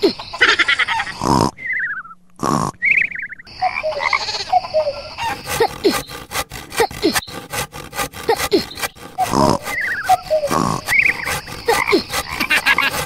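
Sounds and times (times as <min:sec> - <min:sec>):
hand saw sawing: 0:05.2 - 0:13.0.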